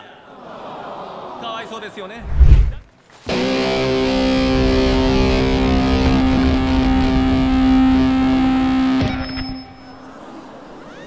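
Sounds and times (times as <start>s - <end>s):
distorted electric guitar chord: 3.3s - 10.0s.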